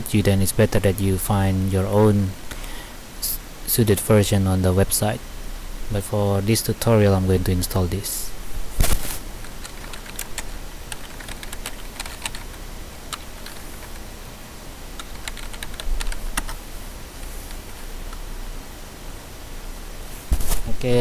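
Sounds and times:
computer keyboard typing: 0:09.4 - 0:14.0, 0:15.0 - 0:16.6.

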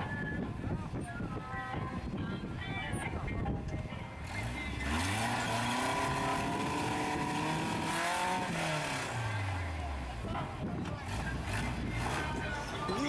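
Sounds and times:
engine revving under load: 0:04.2 - 0:12.8.

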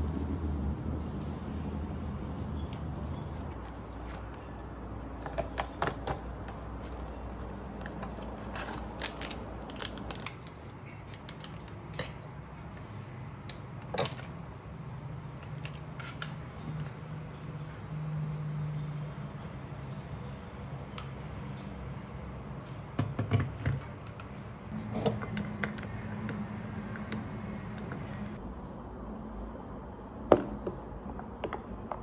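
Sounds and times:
sachet being opened: 0:07.8 - 0:11.9.

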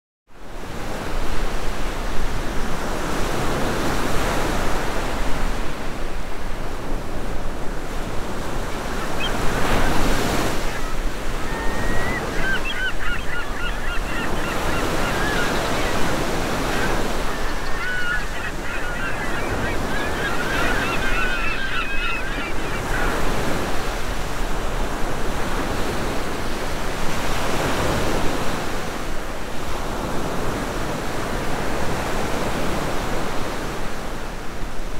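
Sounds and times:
sea waves washing in: 0:00.8 - 0:34.6
birds calling: 0:08.6 - 0:24.4.

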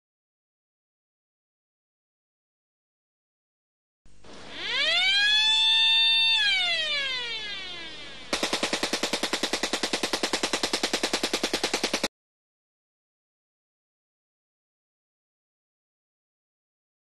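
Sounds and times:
high whine rising and falling: 0:04.1 - 0:08.3
rapid gunfire burst: 0:08.3 - 0:12.1.

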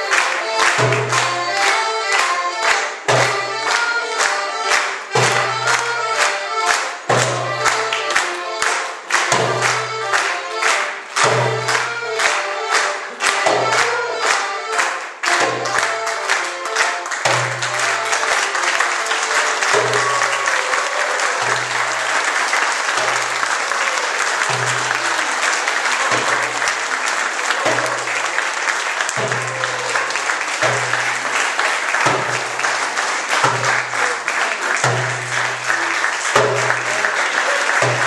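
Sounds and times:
music with steady beat: 0:00.0 - 0:28.4
audience applause: 0:00.0 - 0:38.0.

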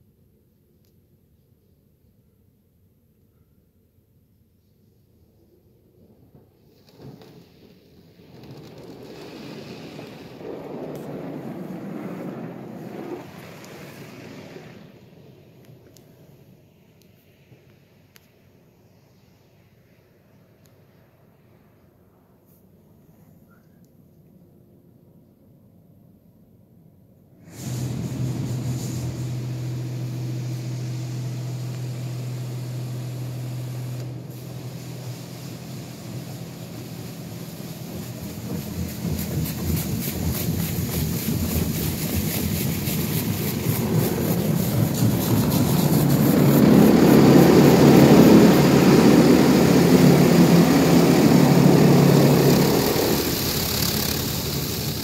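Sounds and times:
car wash spraying foam: 0:06.8 - 0:15.4, 0:27.5 - 0:55.0
low hum: 0:27.6 - 0:55.0.

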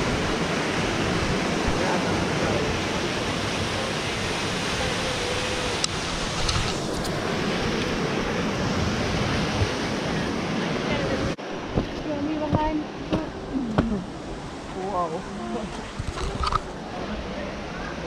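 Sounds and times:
waterfall rushing into pool: 0:00.0 - 0:11.4.

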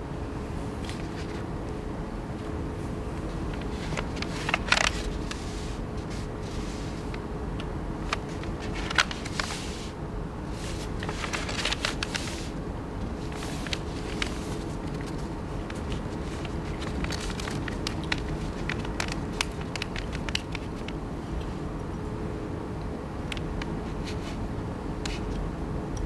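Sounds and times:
steady background hum: 0:00.0 - 0:26.0
paper rustling and creasing: 0:00.8 - 0:01.5, 0:03.2 - 0:07.2, 0:08.0 - 0:21.0.

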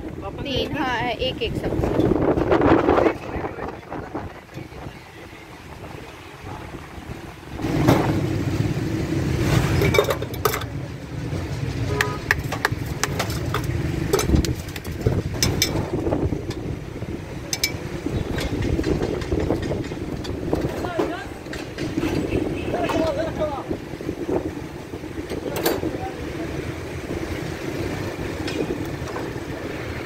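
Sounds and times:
street traffic: 0:00.0 - 0:30.0
glass and steel clinking: 0:09.8 - 0:10.7, 0:17.5 - 0:18.6.

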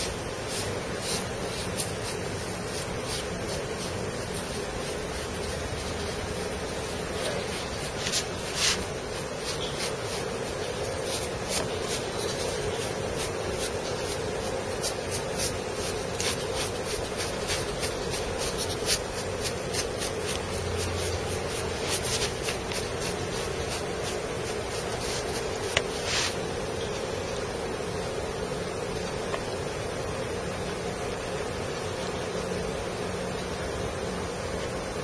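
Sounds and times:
paintbrush scratching powder: 0:00.0 - 0:26.5
steady background hiss: 0:00.0 - 0:35.0.

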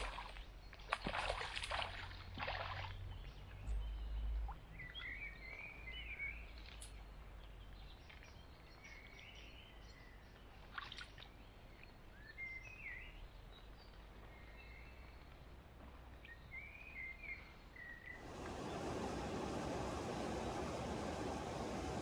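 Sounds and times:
steady rushing noise: 0:18.2 - 0:22.0.

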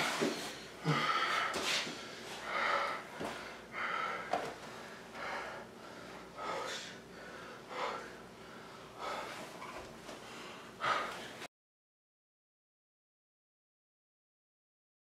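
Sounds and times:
man breathing hard: 0:00.0 - 0:11.5.

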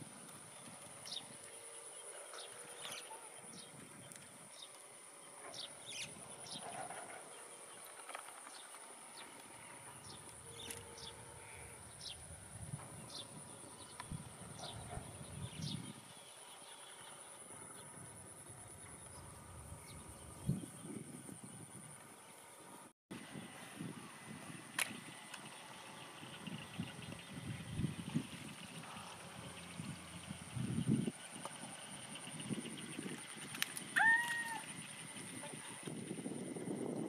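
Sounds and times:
insect trilling: 0:33.8 - 0:35.8.

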